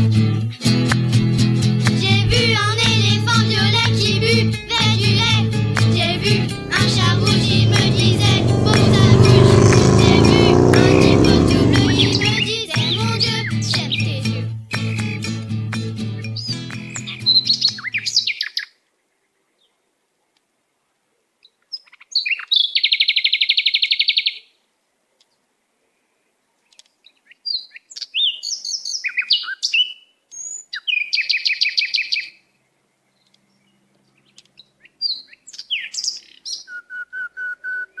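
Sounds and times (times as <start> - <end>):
low steady notes: 2.9 - 12.6.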